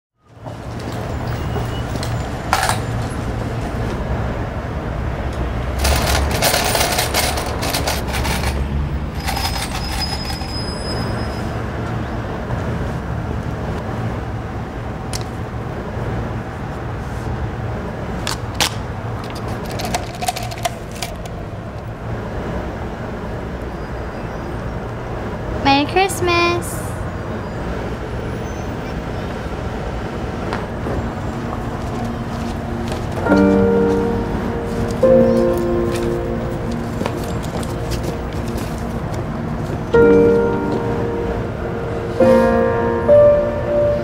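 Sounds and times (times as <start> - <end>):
street ambience hum: 0.2 - 44.0
coins rattling in a cup: 5.8 - 10.7, 19.3 - 21.2.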